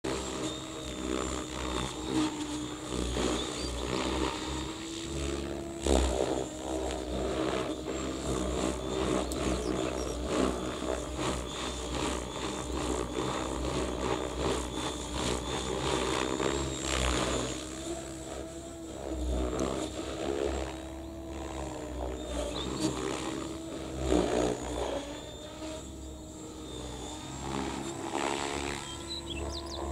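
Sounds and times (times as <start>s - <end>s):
mechanical drone: 0.0s - 29.9s
bird singing: 0.4s - 4.6s, 7.9s - 13.5s, 22.1s - 23.4s, 26.0s - 29.9s.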